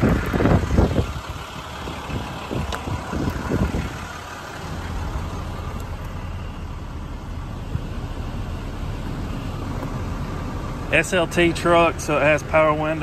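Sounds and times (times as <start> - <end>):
wind buffeting microphone: 0.0 - 5.1
diesel engine idling: 0.0 - 13.0.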